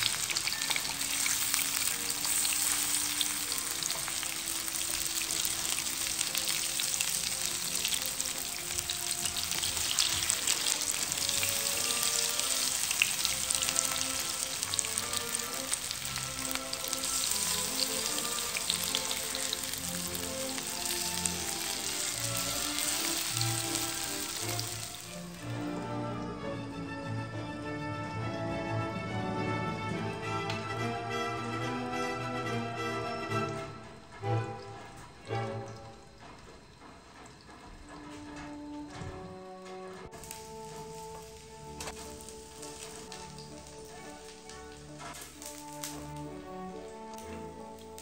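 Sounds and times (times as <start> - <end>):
food sizzling in hot oil: 0.0 - 26.2, 40.1 - 48.0
background music: 0.0 - 48.0.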